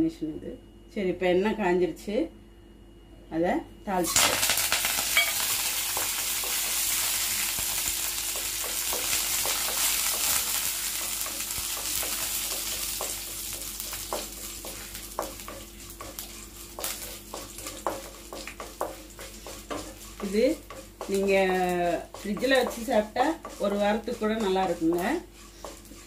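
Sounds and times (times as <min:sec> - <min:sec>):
spices sizzling in hot oil: 0:04.0 - 0:26.0
oil popping and crackling: 0:04.1 - 0:08.5
wooden spatula stirring: 0:08.2 - 0:26.0.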